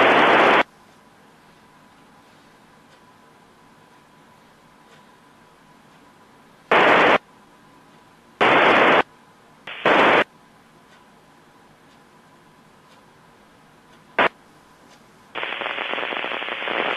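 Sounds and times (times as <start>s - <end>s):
radio static bursts: 0.0s - 0.6s, 6.7s - 7.2s, 8.4s - 9.0s, 9.7s - 10.2s, 15.4s - 16.9s
low hiss: 0.0s - 16.9s.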